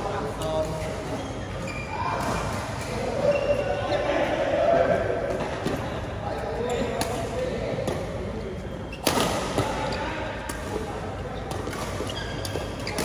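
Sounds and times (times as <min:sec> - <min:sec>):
badminton rackets hitting shuttlecock: 0:08.9 - 0:13.0.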